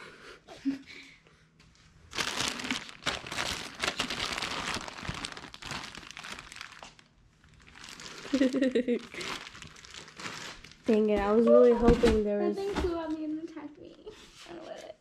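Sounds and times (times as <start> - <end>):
plastic bag crinkling: 2.1 - 13.3.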